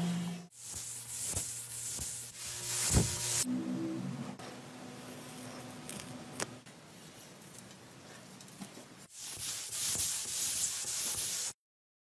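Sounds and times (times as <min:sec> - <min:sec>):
paint spray gun hissing: 0:00.6 - 0:03.5.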